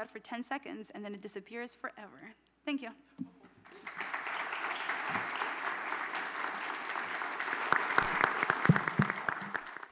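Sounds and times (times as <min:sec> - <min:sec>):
audience applauding: 0:03.6 - 0:09.9
loud single claps: 0:07.7 - 0:09.9.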